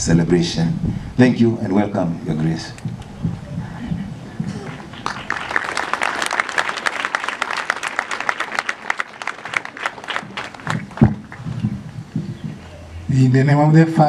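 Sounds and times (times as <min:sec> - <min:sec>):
congregation clapping: 0:02.8 - 0:12.7.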